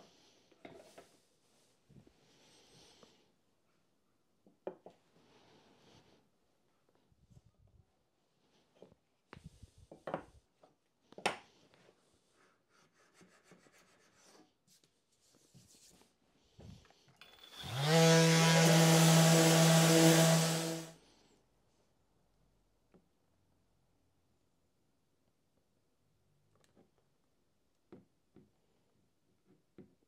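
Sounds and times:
small electric motor with air rush: 17.3 - 21.0.

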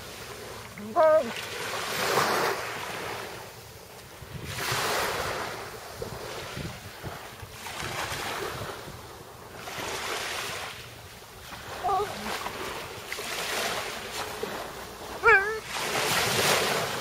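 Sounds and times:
small waves washing on shore: 0.0 - 17.0
wind rumbling on microphone: 1.8 - 10.7.

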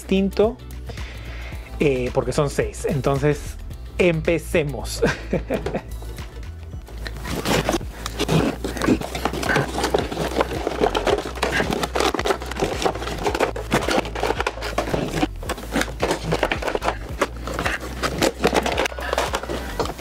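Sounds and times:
plastic packaging crinkling: 7.0 - 20.0.

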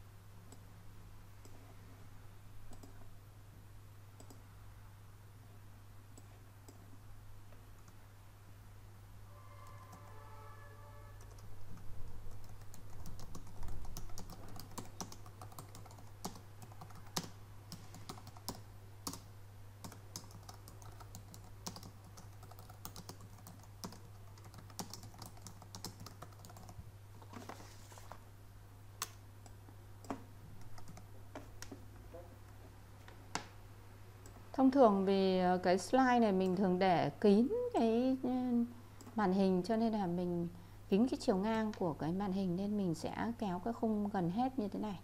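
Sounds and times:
keyboard typing: 2.7 - 3.0, 11.2 - 26.8, 29.0 - 31.8.

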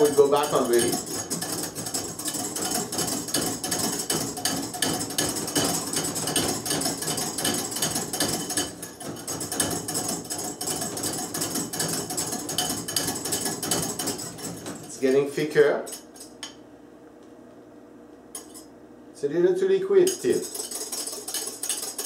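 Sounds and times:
whisk clicking against bowl: 0.0 - 15.3, 20.0 - 22.0.

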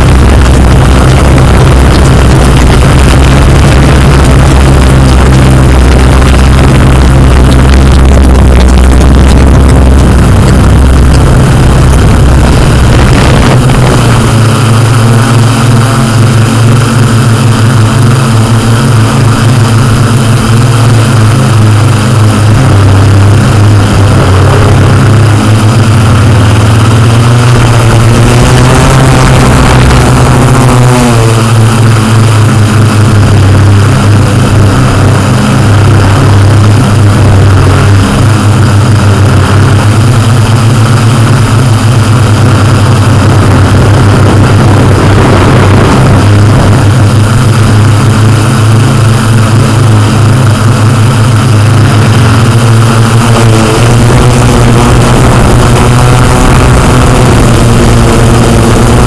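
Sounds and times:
drone motors and propellers: 0.0 - 59.0.

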